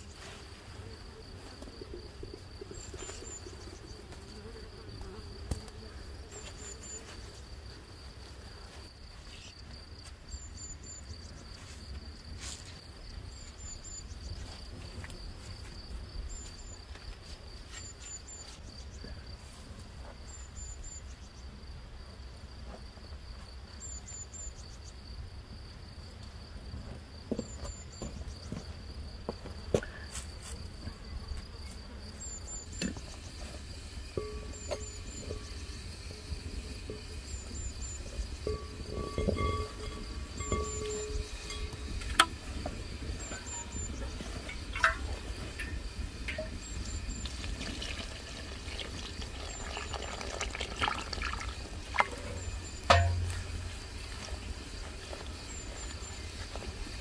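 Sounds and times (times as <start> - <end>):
insects trilling: 0.0 - 22.4, 23.0 - 57.0
high insect chirps: 0.9 - 19.3, 27.2 - 57.0.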